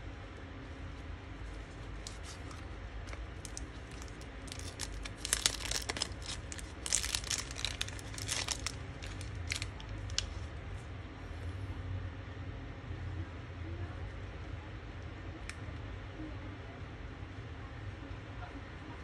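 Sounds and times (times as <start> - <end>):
plastic bag crinkling: 1.4 - 10.5.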